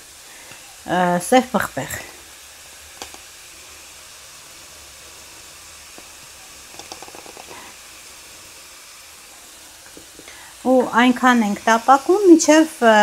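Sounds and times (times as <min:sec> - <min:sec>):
food sizzling in a frying pan: 0:00.0 - 0:13.0
pepper grinder clicks: 0:03.0 - 0:03.3, 0:06.7 - 0:07.6.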